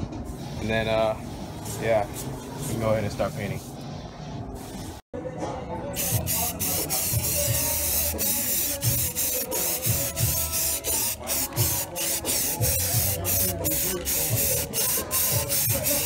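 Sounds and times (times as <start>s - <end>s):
aerosol spray can hissing: 6.0s - 16.0s.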